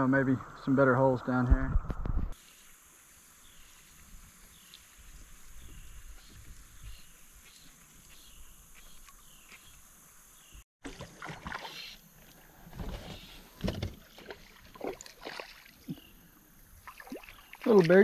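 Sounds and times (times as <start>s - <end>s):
faint river ambience: 2.3s - 18.0s
water splashing around a kayak: 10.8s - 16.2s, 16.8s - 18.0s.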